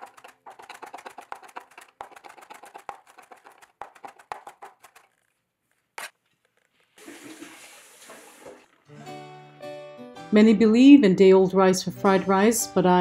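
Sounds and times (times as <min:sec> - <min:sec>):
knife chopping herbs on board: 0:00.0 - 0:05.0.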